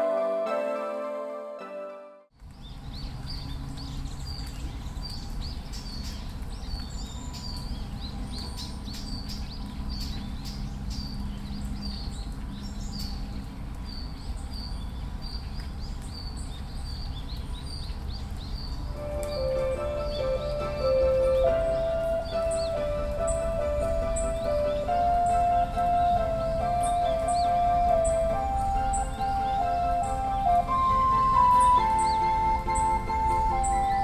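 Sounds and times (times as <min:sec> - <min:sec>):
music: 0:00.0 - 0:02.3, 0:19.0 - 0:34.0
bird chirping: 0:02.4 - 0:34.0
low outdoor rumble: 0:02.4 - 0:34.0.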